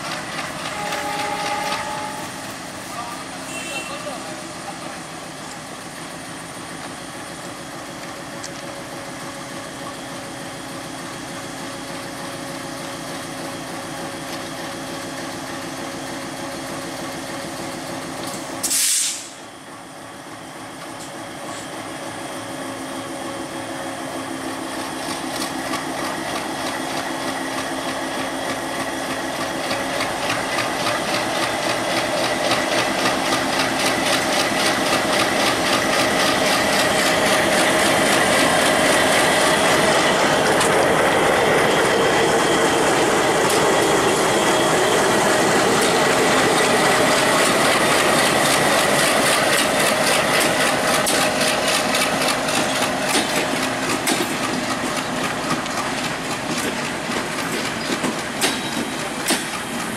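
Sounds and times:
diesel locomotive engine: 0:00.0 - 0:59.9
loud hiss: 0:18.6 - 0:19.5.

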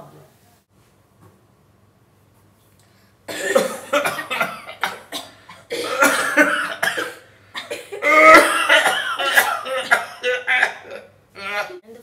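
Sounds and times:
people coughing: 0:03.3 - 0:11.8.

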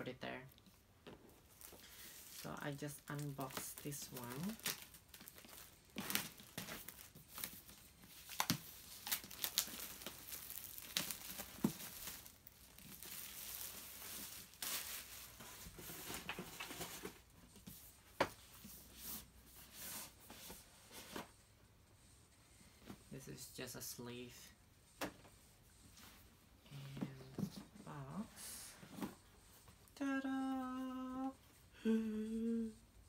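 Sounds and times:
plastic packaging crinkling and tearing: 0:01.5 - 0:17.0.

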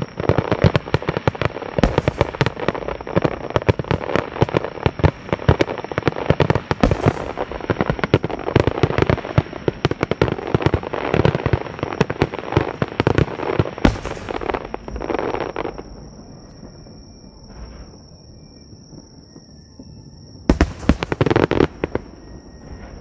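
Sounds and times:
fireworks bangs and pops: 0:00.0 - 0:15.9, 0:20.5 - 0:22.0
fireworks crackle hissing: 0:00.0 - 0:15.9.

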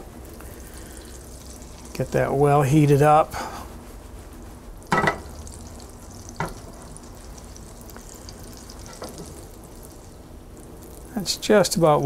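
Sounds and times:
butter and oil sizzling in skillet: 0:00.1 - 0:03.0, 0:04.8 - 0:11.8.

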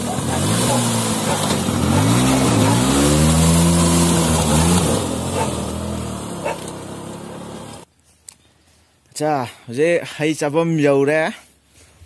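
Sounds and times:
scooter engine revving: 0:00.0 - 0:07.9.

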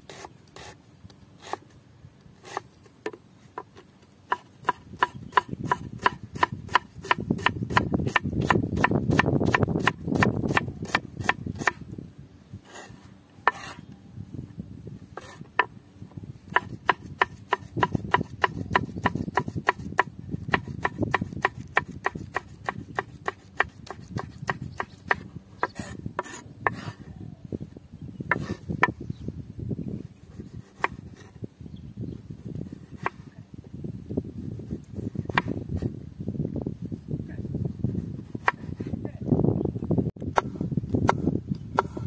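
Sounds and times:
knife chopping on wooden board: 0:04.3 - 0:11.8, 0:16.5 - 0:26.9, 0:30.6 - 0:31.0.

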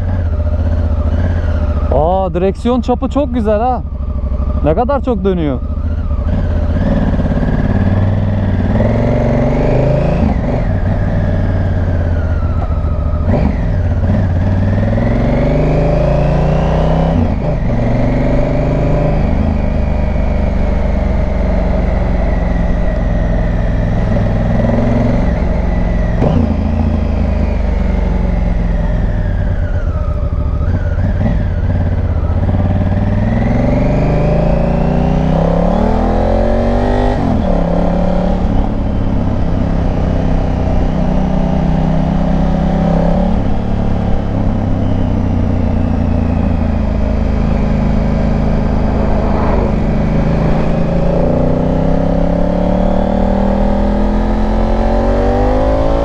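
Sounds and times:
motorcycle engine revving: 0:00.0 - 0:56.0
wind rush: 0:46.6 - 0:53.2.

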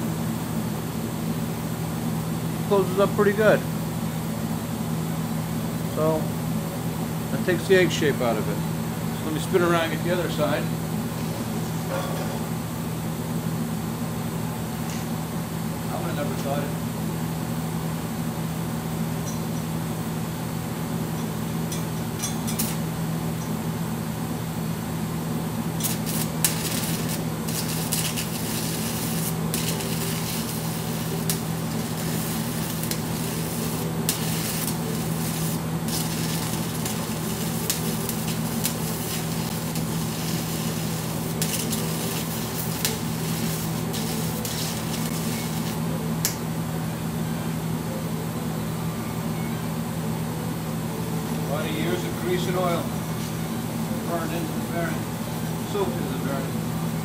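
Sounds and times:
steady low hum: 0:00.0 - 0:57.0
arc welder crackling and sizzling: 0:21.5 - 0:23.5, 0:24.7 - 0:46.4.

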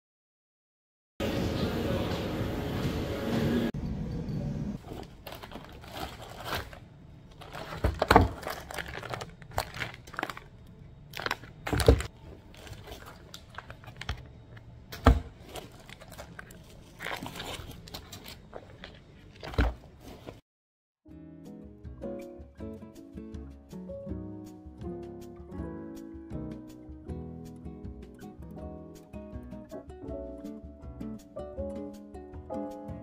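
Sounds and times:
crinkling and clicking: 0:04.9 - 0:14.7.

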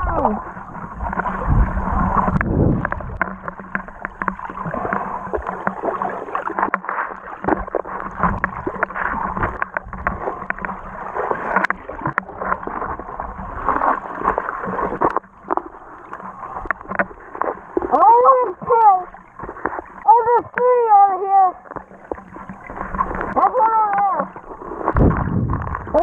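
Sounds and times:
muffled underwater sloshing: 0:00.0 - 0:26.0
small clicks and knocks: 0:02.4 - 0:10.8, 0:14.6 - 0:17.9.

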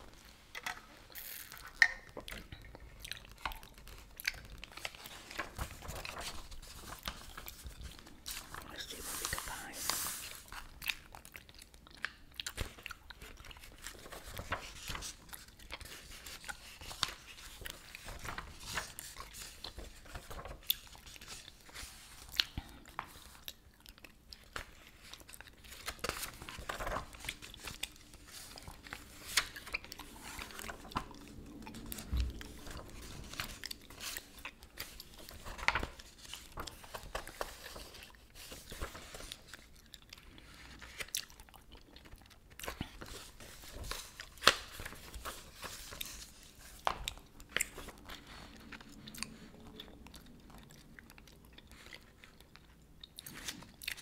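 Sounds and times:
paper pages turning: 0:03.2 - 0:11.3, 0:12.5 - 0:22.3, 0:24.4 - 0:39.8, 0:40.4 - 0:41.3, 0:42.0 - 0:49.5.

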